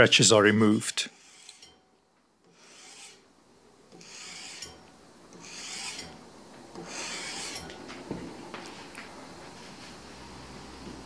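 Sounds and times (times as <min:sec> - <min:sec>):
sandpaper rasping on steel blade: 0:01.0 - 0:01.8, 0:02.5 - 0:03.2, 0:04.0 - 0:04.8, 0:05.4 - 0:06.2, 0:06.8 - 0:07.7.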